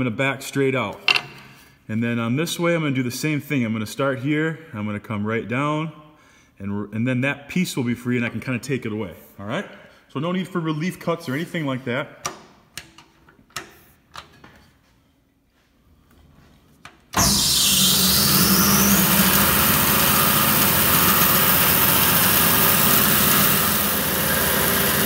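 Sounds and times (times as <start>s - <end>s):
bandsaw running: 17.2s - 25.0s.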